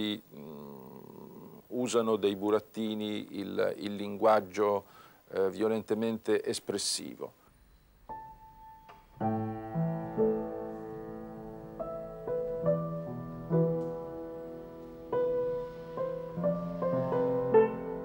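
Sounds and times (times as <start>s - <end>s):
slow upright piano piece: 8.1s - 18.0s.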